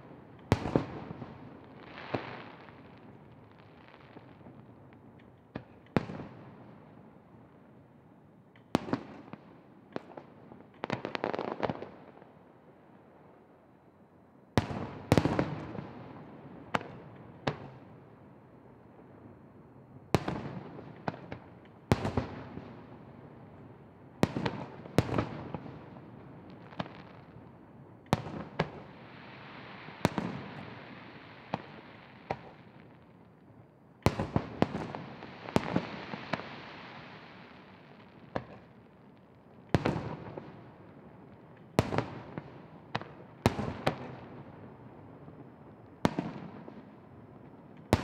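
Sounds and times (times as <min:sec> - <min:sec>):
steady hiss: 0:28.9 - 0:32.6, 0:35.0 - 0:38.3.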